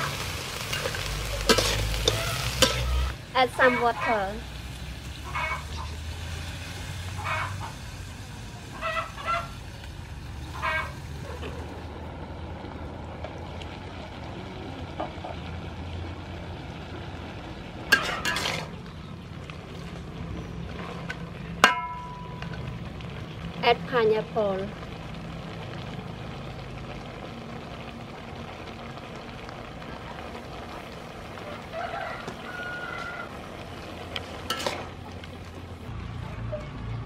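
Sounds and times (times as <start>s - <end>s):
wok simmering hiss: 0.0s - 37.0s
metal spatula clanking on wok: 0.7s - 3.0s, 17.9s - 18.7s, 21.6s - 22.6s, 34.4s - 34.9s
animal calling: 5.2s - 5.9s.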